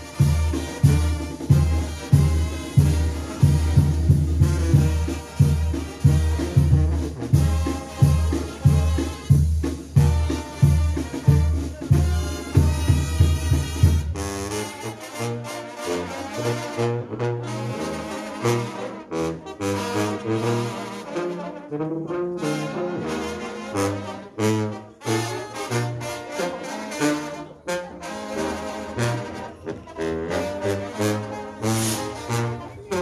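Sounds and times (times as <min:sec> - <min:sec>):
brass band music: 0:00.0 - 0:33.0
pounding drum beat: 0:00.1 - 0:14.2.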